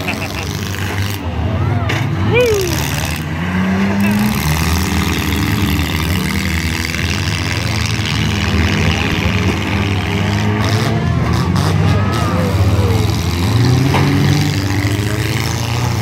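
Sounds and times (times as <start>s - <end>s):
car engines revving: 0.0s - 16.0s
faint shouting voices: 1.2s - 4.3s, 10.2s - 14.2s.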